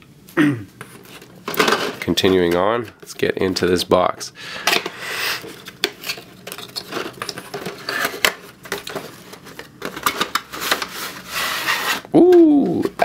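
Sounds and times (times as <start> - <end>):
box lid sliding scrape: 10.5 - 12.1.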